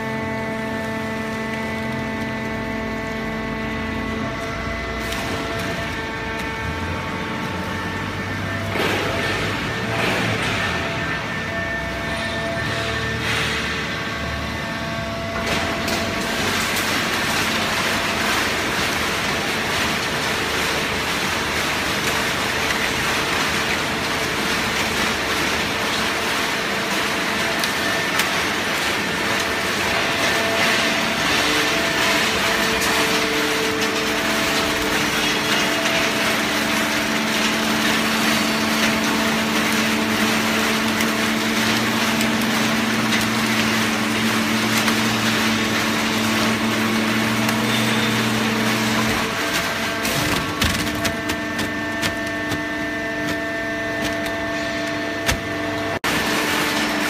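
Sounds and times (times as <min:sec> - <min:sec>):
continuous mechanical noise: 0:00.0 - 0:57.0
hydraulic baler humming: 0:00.0 - 0:57.0.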